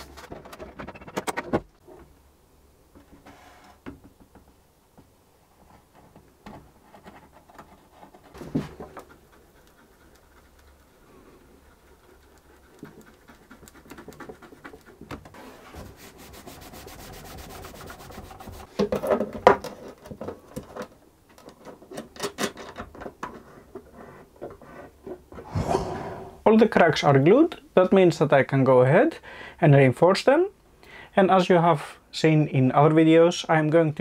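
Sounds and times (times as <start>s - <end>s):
cloth rubbing on wood: 15.3s - 18.7s.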